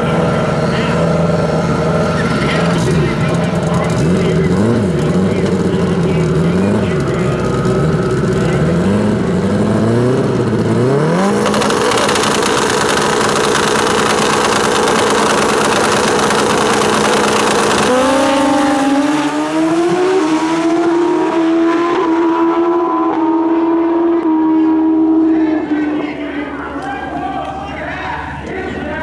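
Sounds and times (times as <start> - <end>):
motorcycles accelerating away: 0.0 - 26.4
motorcycle engines revving: 0.0 - 29.0.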